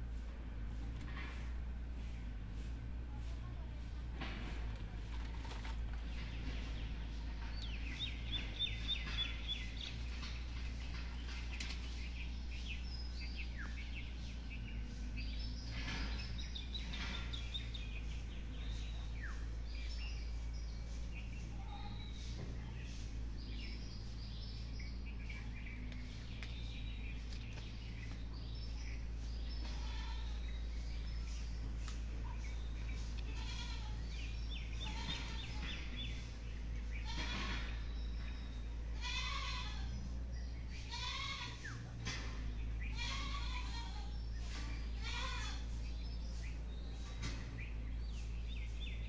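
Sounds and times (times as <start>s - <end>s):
low background hum: 0.0s - 49.0s
birds chirping and calling: 3.8s - 49.0s.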